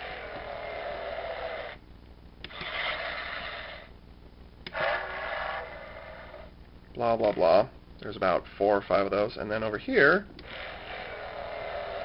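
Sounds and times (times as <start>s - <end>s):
toy electronic sound effects: 2.5s - 3.9s.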